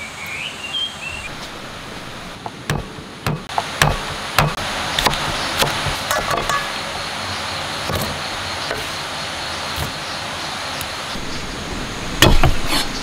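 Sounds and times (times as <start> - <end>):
steady background hiss: 0.0 - 13.0
cleaver chopping on wooden board: 2.7 - 6.7, 12.2 - 12.6.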